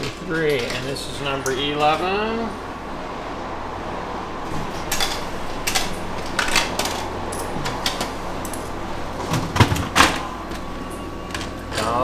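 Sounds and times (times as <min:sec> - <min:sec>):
faint machine hum: 0:00.0 - 0:12.0.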